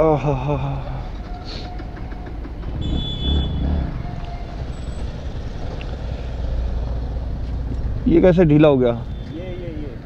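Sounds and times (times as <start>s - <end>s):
street traffic: 0.0s - 10.0s
motorcycle engine idling: 0.9s - 8.1s.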